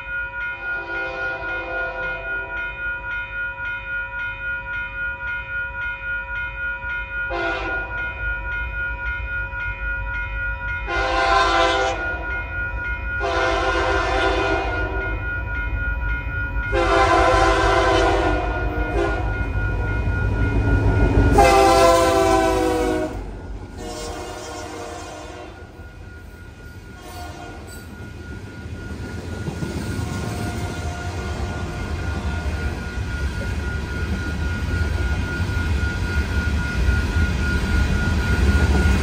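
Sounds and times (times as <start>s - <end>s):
locomotive air horn blasts: 0.8s - 2.3s, 7.3s - 7.9s, 10.9s - 12.0s, 13.2s - 15.1s, 16.7s - 19.3s, 21.3s - 25.7s, 27.0s - 27.7s.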